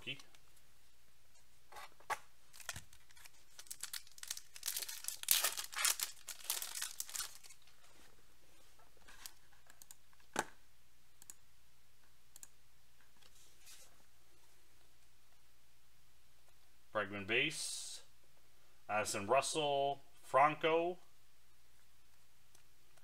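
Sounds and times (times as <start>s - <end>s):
foil wrapper tearing and crinkling: 2.5s - 7.6s.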